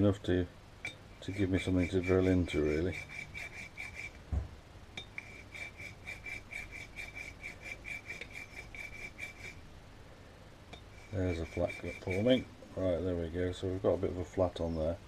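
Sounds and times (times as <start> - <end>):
hand file rasping on metal: 1.2 - 4.2, 5.2 - 9.6, 10.9 - 12.5.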